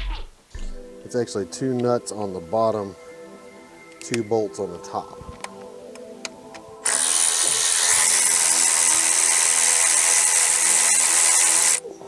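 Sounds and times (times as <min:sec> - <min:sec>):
power ratchet whirring: 0:06.8 - 0:11.8.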